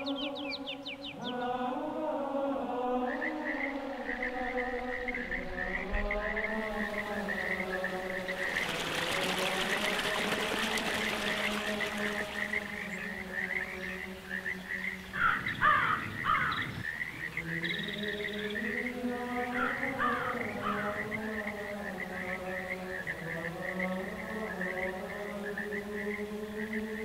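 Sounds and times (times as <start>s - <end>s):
frog chorus chirping: 2.8s - 27.0s
loud falling frog calls: 3.0s - 18.8s.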